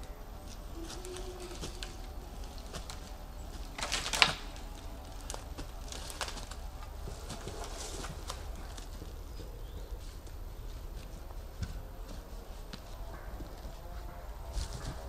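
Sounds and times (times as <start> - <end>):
faint bird call: 0.0 - 5.4
footsteps rustling in dry leaves: 0.0 - 15.0
loud crunch: 0.0 - 15.0.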